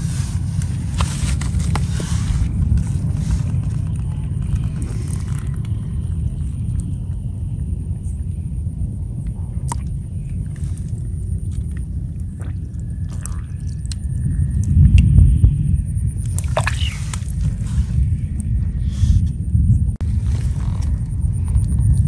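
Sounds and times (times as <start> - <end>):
wind rumbling on microphone: 0.0 - 22.0
small water sounds: 9.4 - 14.8, 16.2 - 18.5.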